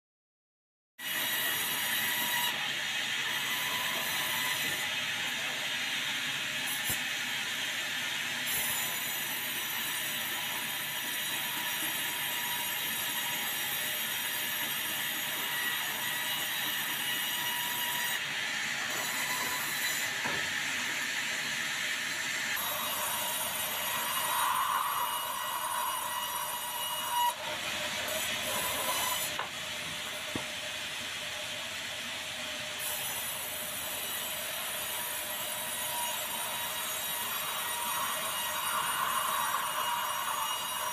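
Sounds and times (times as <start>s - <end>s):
band sawmill running: 1.2s - 40.9s
faint saw whine: 12.1s - 38.8s.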